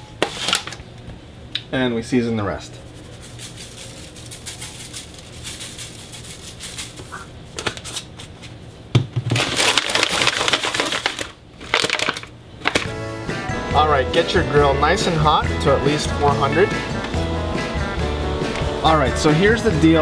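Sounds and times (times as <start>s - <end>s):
shaker bottle rattling: 2.9s - 7.2s, 9.3s - 12.9s
aluminium foil pan crinkling: 3.0s - 8.1s, 9.3s - 12.9s.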